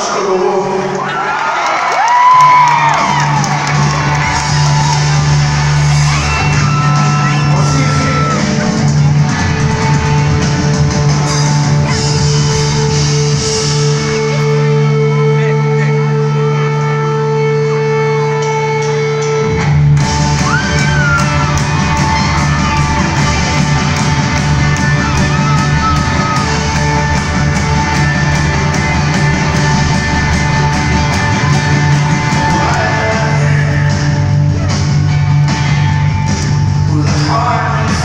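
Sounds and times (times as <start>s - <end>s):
drums: 0.0s - 38.0s
rock band playing live: 2.2s - 38.0s
person singing: 32.2s - 34.3s, 36.8s - 38.0s.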